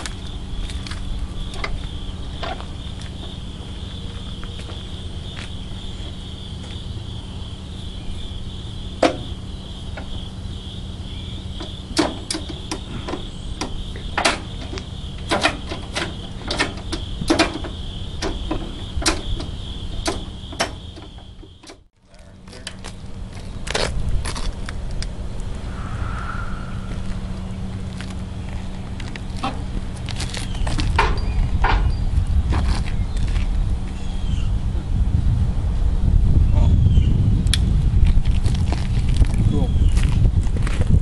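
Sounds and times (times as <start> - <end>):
insects chirring: 0.0 - 35.1
sharp clicks and knocks: 11.6 - 21.9
low steady hum: 22.0 - 30.1.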